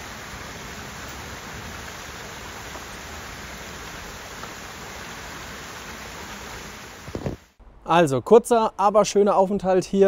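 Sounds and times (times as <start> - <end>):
stream water rushing and splashing: 0.0 - 7.6.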